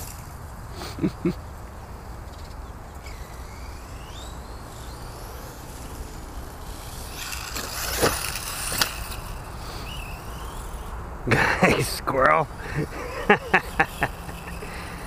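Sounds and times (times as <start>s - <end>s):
rc car motor whine: 0.0s - 0.8s, 1.4s - 11.2s, 12.2s - 15.0s.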